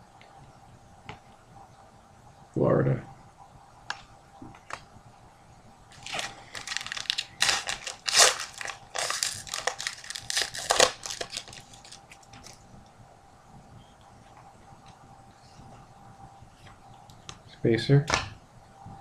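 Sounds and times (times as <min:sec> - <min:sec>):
wrapper tearing and crinkling: 0:05.9 - 0:12.6.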